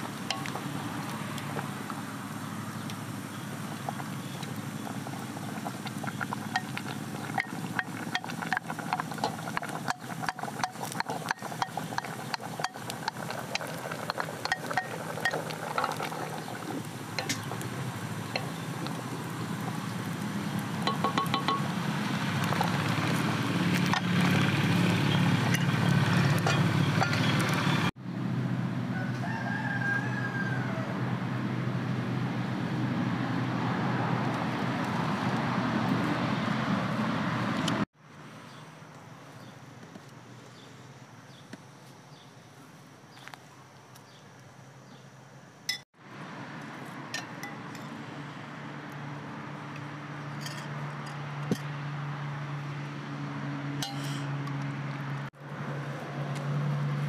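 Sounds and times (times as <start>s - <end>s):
broth simmering: 0.0s - 27.9s
wooden spoon knocking metal pot: 6.4s - 16.4s, 20.9s - 21.7s
rooster crowing: 28.9s - 31.1s.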